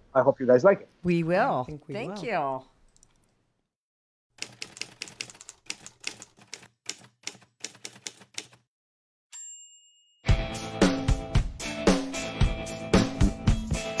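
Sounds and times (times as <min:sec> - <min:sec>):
typewriter keystrokes clicking: 0:04.4 - 0:08.6.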